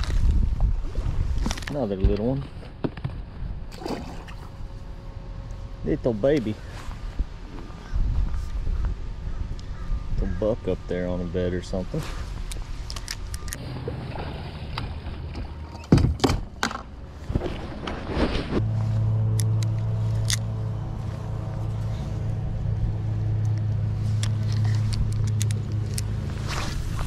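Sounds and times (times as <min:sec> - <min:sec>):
sharp knocks and handling thumps: 0:15.3 - 0:18.6
electric trolling motor humming: 0:18.6 - 0:27.0.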